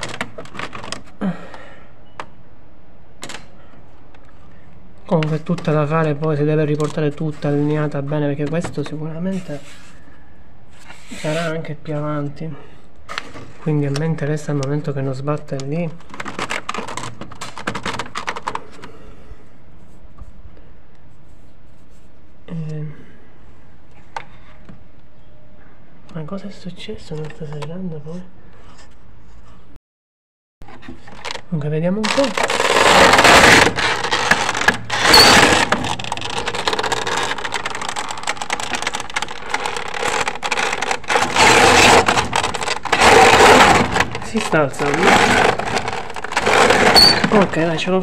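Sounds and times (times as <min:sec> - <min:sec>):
roller shutter slats clattering: 0:32.2 - 0:47.7.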